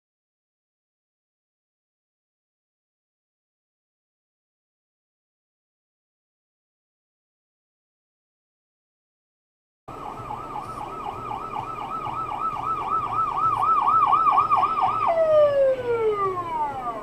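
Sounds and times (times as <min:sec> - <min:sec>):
ambulance siren warbling: 0:09.9 - 0:17.0.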